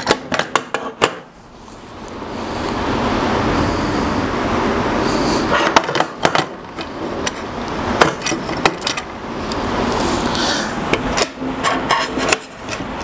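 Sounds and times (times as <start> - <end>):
scraping and rubbing on table: 11.6 - 12.7.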